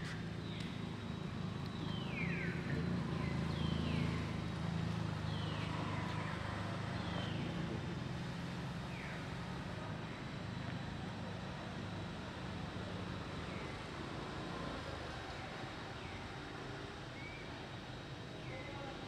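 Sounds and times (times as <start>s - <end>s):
low engine rumble: 0.0s - 13.9s.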